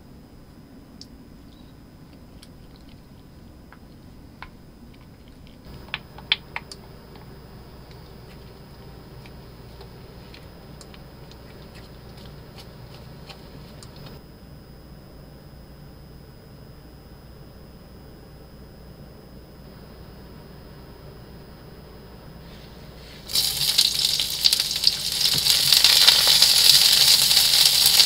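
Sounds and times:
low steady hum: 0.0s - 28.0s
spoon stirring thick sauce: 7.8s - 14.2s.

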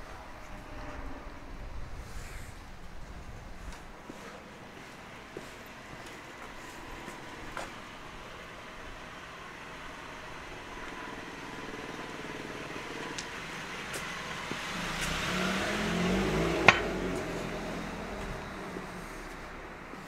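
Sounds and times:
car passing by: 11.0s - 20.0s.

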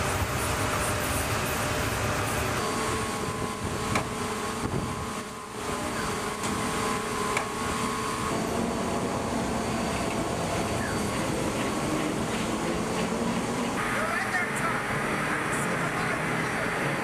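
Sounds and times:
wind noise: 0.0s - 5.2s
ship machinery: 0.0s - 17.0s.

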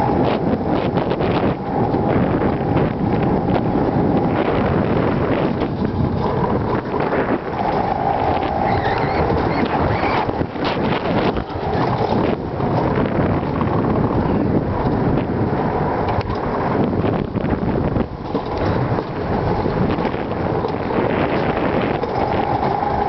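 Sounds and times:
whine: 0.0s - 14.9s
sled wheels rumbling on rails: 0.0s - 23.0s
wind buffeting microphone: 0.0s - 23.0s.

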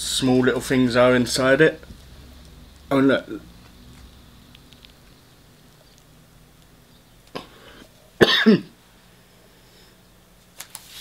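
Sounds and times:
man coughing: 8.2s - 8.8s.

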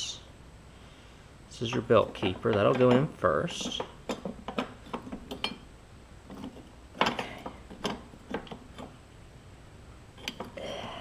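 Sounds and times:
sharp clicks and metal knocks: 1.6s - 5.7s, 6.3s - 9.0s, 10.2s - 10.6s.

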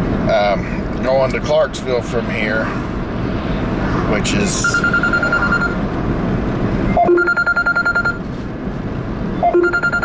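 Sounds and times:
road noise inside car: 0.0s - 10.0s
electronic alert beeps: 4.6s - 5.8s, 7.0s - 8.2s, 9.4s - 10.0s.

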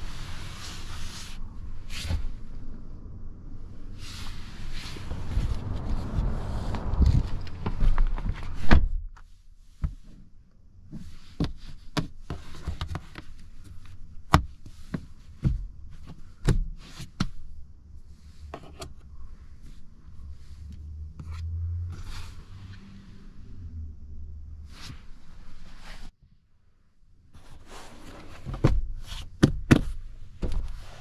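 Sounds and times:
low hum: 0.0s - 8.6s, 19.9s - 25.7s.

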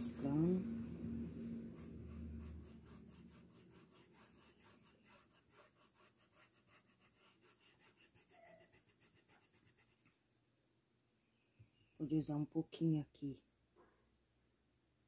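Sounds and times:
paintbrush scrubbing on fabric: 1.6s - 10.0s.

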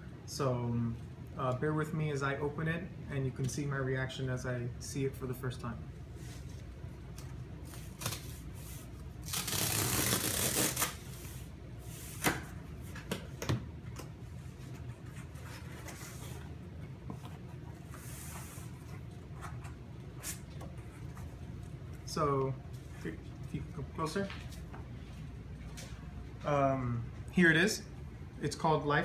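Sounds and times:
cardboard tear strip ripping: 7.8s - 8.3s, 9.2s - 11.0s.

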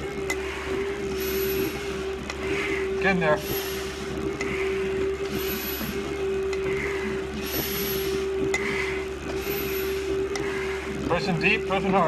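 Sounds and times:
breathing through a regulator: 0.0s - 11.4s
machine hum: 0.0s - 12.0s.

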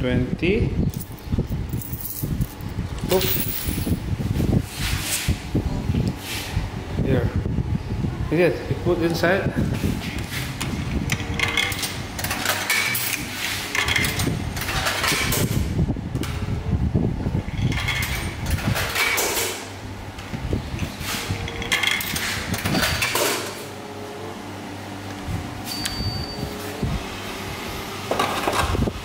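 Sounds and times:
coins clattering into slot: 1.0s - 4.0s, 11.2s - 15.5s
vending machine motor hum: 5.4s - 29.0s.

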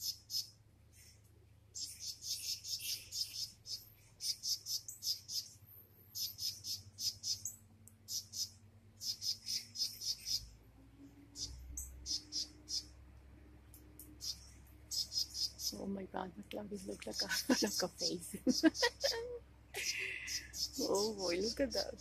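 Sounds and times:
rapid high-pitched animal chirps: 0.0s - 0.5s, 1.8s - 5.6s, 6.2s - 10.4s, 11.4s - 12.9s, 14.2s - 15.8s, 19.8s - 22.0s.

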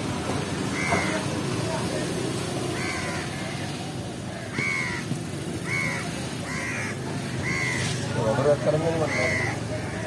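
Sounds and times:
crows cawing: 0.7s - 1.3s, 2.7s - 10.0s.

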